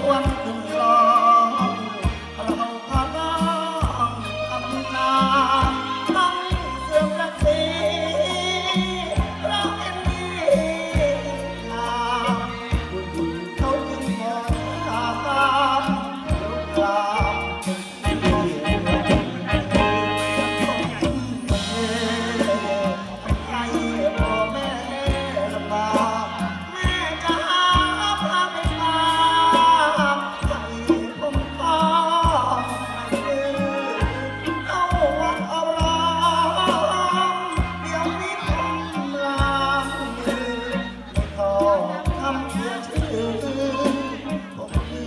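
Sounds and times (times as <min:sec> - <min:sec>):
bass line: 0:00.0 - 0:45.0
live band playing dance music: 0:00.0 - 0:45.0
man singing into microphone: 0:00.0 - 0:45.0
drum beat: 0:17.2 - 0:26.2.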